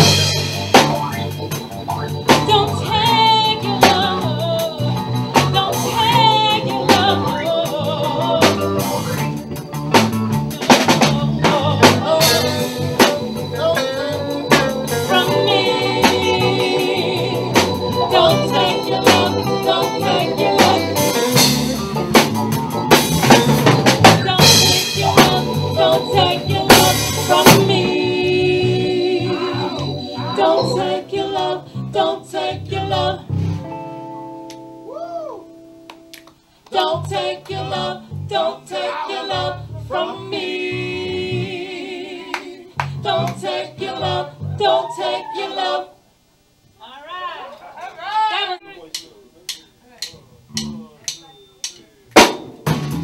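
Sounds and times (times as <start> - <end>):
drum kit: 0.0 - 34.6, 42.4 - 44.3, 48.9 - 53.0
guitar: 0.0 - 41.5
keyboard: 0.0 - 44.7
person singing: 5.5 - 9.2, 10.6 - 21.6, 24.1 - 33.2.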